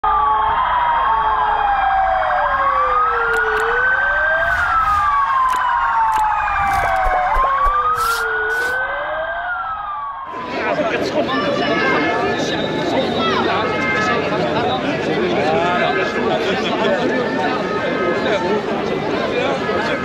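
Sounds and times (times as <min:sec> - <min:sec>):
ambulance sirens wailing: 0:00.0 - 0:10.7
fast warbling siren: 0:01.2 - 0:10.4.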